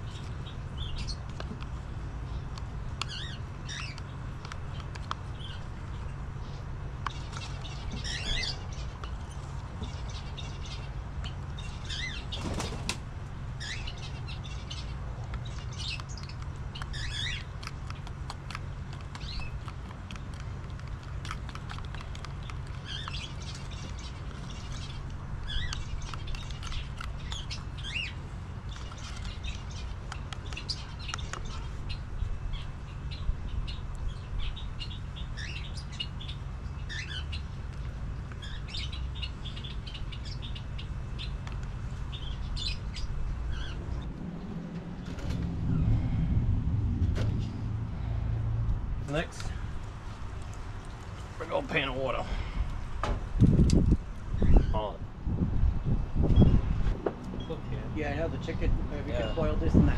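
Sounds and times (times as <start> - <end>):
small birds chirping: 0.0 - 59.9
steady low rumble: 0.0 - 59.9.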